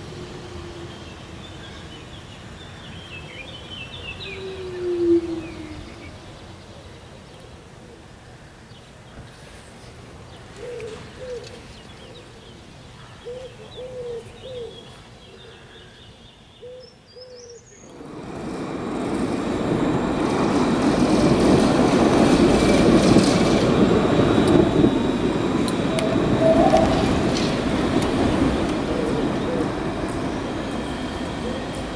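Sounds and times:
tram rumbling on rails: 17.9s - 31.9s
bird calling: 25.6s - 30.5s.

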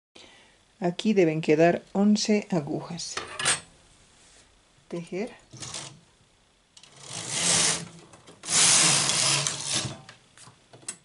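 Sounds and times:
knitting machine carriage clatter: 6.8s - 10.0s.

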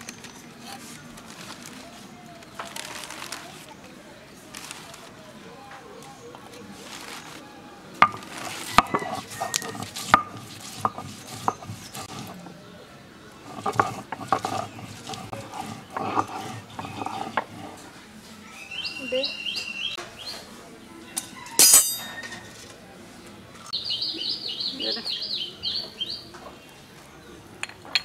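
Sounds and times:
stone grinding on stone slab: 8.0s - 12.5s, 13.4s - 17.9s.

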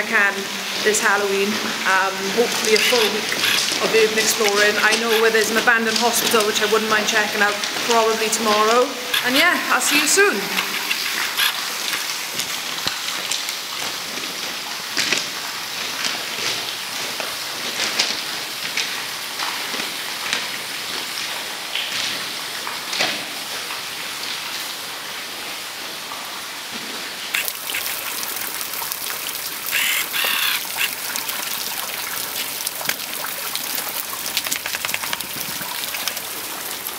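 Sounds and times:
crackling hiss: 2.5s - 5.3s, 7.5s - 13.7s, 27.3s - 36.9s
noisy hiss: 26.9s - 36.9s.

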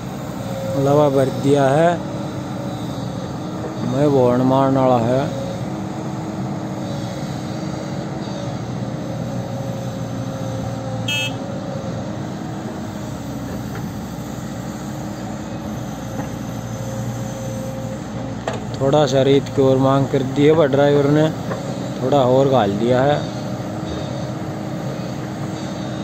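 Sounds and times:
tractor idling: 0.0s - 6.8s, 10.8s - 16.6s
excavator diesel engine: 0.0s - 26.0s.

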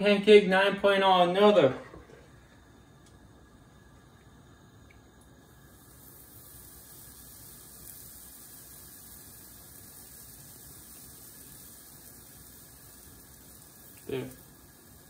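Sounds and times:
batter sizzling on a griddle: 5.3s - 15.0s.

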